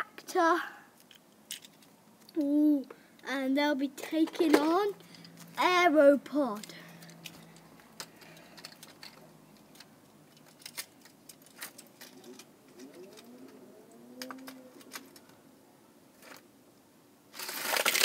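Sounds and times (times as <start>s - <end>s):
toy cars clicking on plastic: 14.2s - 15.3s, 17.4s - 18.0s.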